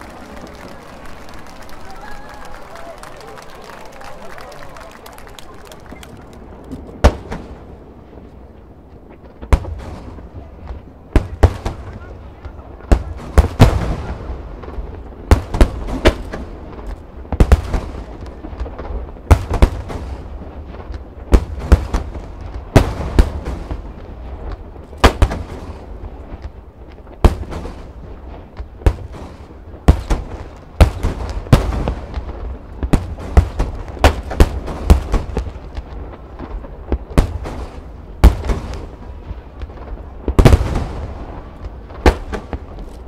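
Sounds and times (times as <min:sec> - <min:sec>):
fireworks booming: 0:00.0 - 0:43.0.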